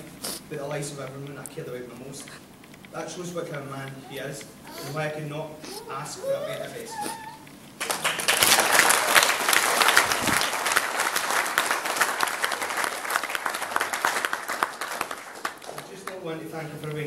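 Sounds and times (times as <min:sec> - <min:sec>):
guests applauding: 0:07.8 - 0:16.3.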